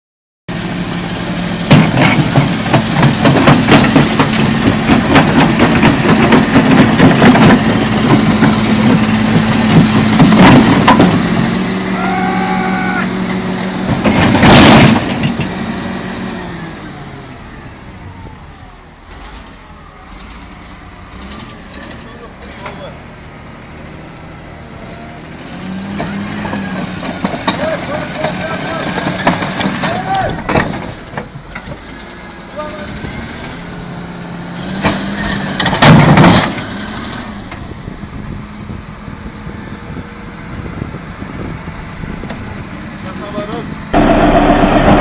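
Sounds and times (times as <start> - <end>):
bulldozer diesel engine: 0.5 - 45.0
steel tracks clanking: 1.7 - 11.4
sudden loud rush of noise: 43.9 - 45.0.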